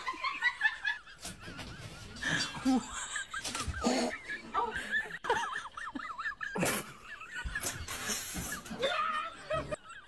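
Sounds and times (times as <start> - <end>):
people laughing: 0.0 - 10.0.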